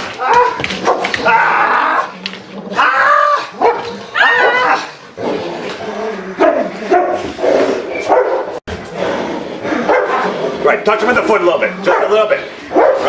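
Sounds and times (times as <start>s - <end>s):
dog barking: 3.6s - 4.8s, 6.4s - 7.2s, 8.0s - 8.6s, 9.9s - 10.3s, 11.8s - 13.0s.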